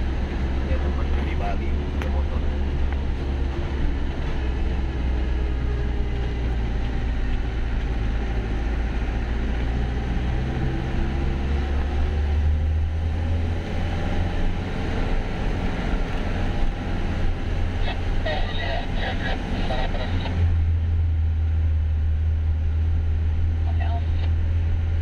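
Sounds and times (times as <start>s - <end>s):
diesel bus engine running: 0.0s - 25.0s.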